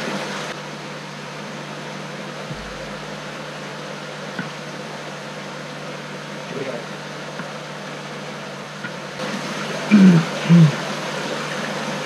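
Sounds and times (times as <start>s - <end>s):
machine hum with hiss: 0.0s - 12.0s
soft low thump: 2.5s - 3.2s.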